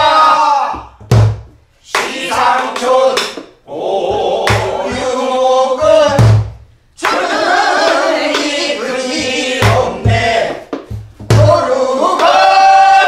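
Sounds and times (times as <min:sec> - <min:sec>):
low barrel drum beats: 0:00.8 - 0:01.6, 0:05.8 - 0:06.6, 0:09.1 - 0:11.7
voices singing in unison: 0:01.8 - 0:06.4, 0:07.0 - 0:13.0.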